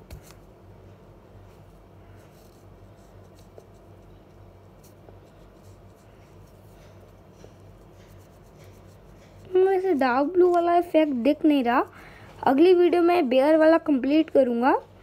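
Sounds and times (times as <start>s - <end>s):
low steady hum: 0.0s - 15.0s
felt-tip pen scratching on paper: 2.1s - 10.6s.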